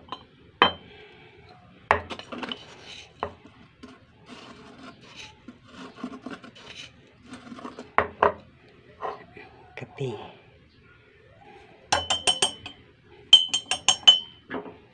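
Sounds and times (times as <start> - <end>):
spoon clinking on jar: 0.0 - 0.9, 11.9 - 14.4
scraping and rubbing: 2.0 - 8.0.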